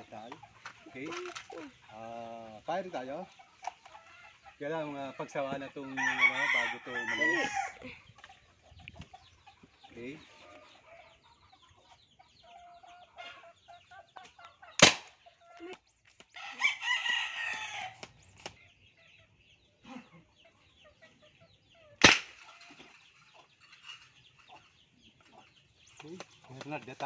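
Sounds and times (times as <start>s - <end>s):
chickens clucking: 0.0s - 27.0s
rooster crowing: 6.0s - 7.8s, 16.4s - 18.0s
toy rifle shots: 14.8s - 15.1s, 22.0s - 22.5s.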